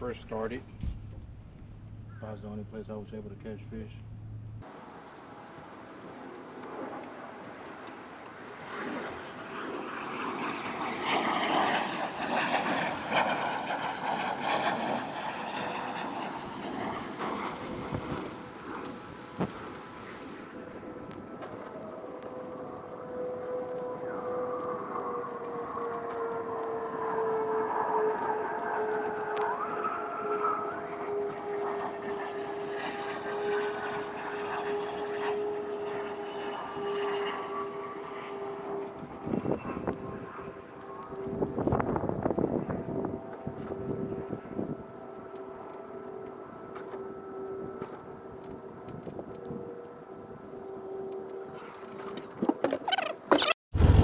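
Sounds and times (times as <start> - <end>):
wind buffeting microphone: 10.5 - 27.3, 38.8 - 45.3
motor droning: 10.6 - 54.0.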